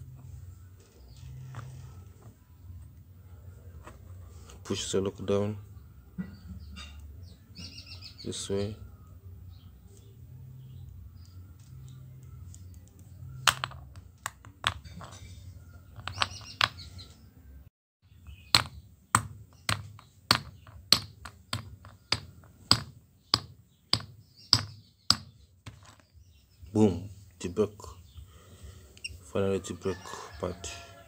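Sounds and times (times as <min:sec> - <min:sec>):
stone knocking on metal padlock: 0:13.4 - 0:15.3, 0:16.0 - 0:16.8, 0:18.5 - 0:26.1
handling noise: 0:18.5 - 0:26.2.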